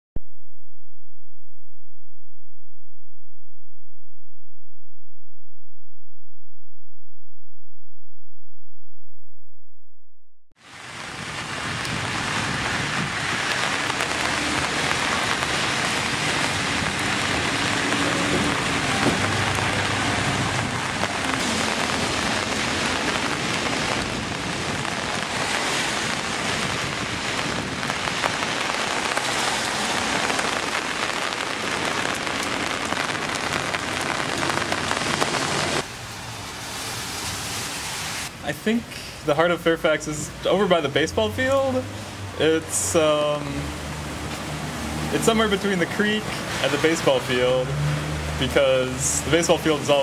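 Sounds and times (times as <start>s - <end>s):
rain falling on street: 10.6s - 50.0s.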